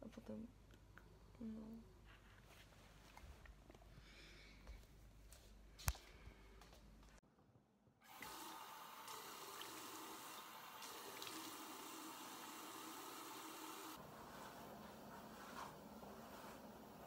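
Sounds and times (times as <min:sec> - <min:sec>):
water running from tap into sink: 0:08.1 - 0:14.0
person washing face with hands: 0:08.1 - 0:17.0.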